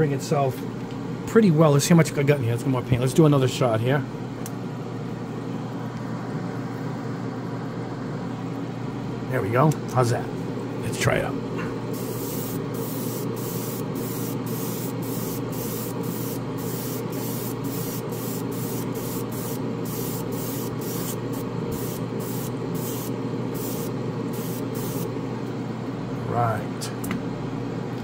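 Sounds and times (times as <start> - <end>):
extraction fan: 0.0 - 28.0
airbrush spraying in bursts: 11.9 - 25.1.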